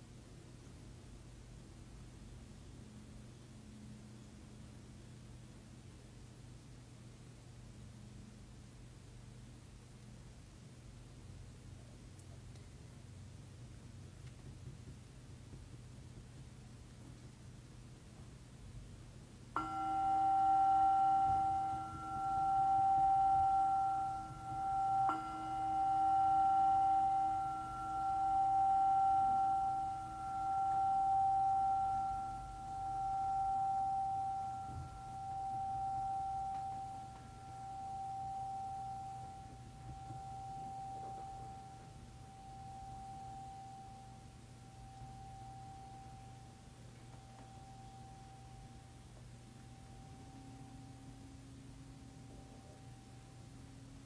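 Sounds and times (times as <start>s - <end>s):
meditation bell ringing: 19.6s - 53.4s.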